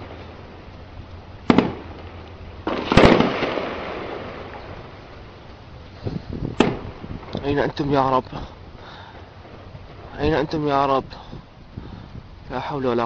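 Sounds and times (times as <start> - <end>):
sharp gunfire crack: 1.4 - 5.0, 6.5 - 7.4
echoing explosion blast: 1.4 - 5.1, 6.5 - 7.5.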